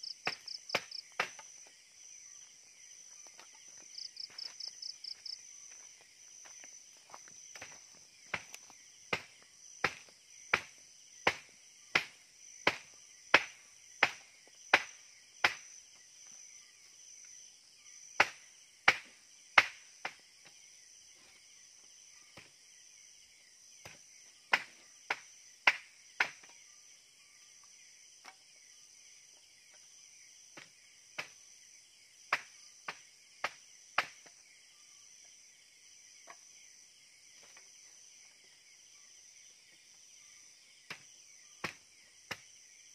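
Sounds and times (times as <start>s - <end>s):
crickets chirping: 0.0s - 42.9s
chopping knocks: 0.2s - 1.5s, 41.6s - 42.5s.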